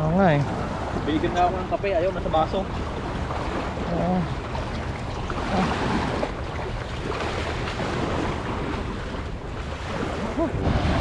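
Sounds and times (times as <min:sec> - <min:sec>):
small waves washing: 0:00.0 - 0:11.0
wind buffeting microphone: 0:00.0 - 0:11.0.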